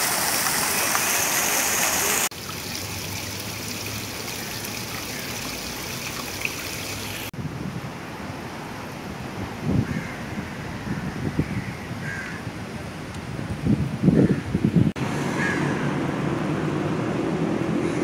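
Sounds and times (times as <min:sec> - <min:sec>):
fountain jets rushing into pool: 0:00.0 - 0:07.3
small fountain splashing in basin: 0:00.0 - 0:07.3.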